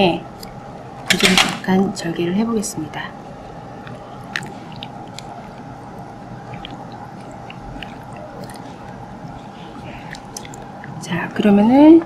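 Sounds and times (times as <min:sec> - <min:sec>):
steady background hum: 0:00.0 - 0:12.0
wet tissue squelches: 0:03.4 - 0:11.4.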